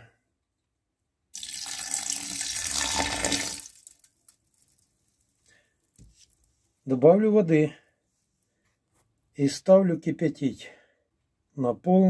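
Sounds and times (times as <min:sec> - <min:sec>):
liquid splashing pour: 0:01.4 - 0:04.9.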